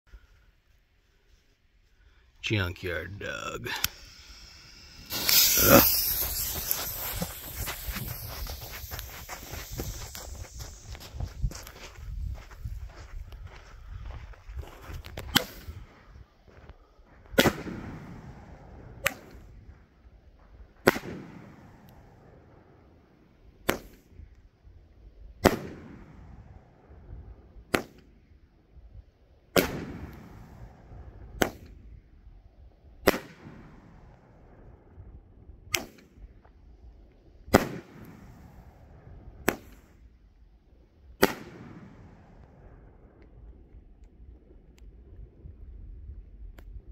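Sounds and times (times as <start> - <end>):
firework shell launch thumps: 3.7 - 11.1
firework bursting bangs: 3.7 - 11.7, 17.4 - 19.5, 20.8 - 22.2, 25.4 - 26.2, 29.6 - 30.8, 33.1 - 33.9, 37.5 - 38.7, 41.2 - 42.3.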